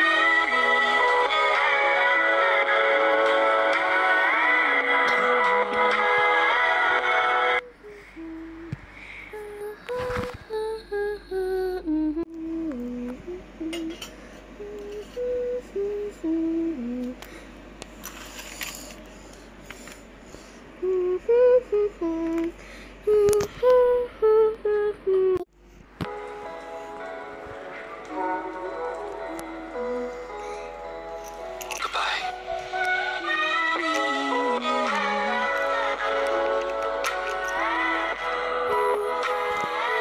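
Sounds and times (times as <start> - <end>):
person humming a tune: 7.6 - 17.2, 20.8 - 25.5, 28.1 - 31.0, 32.2 - 40.0.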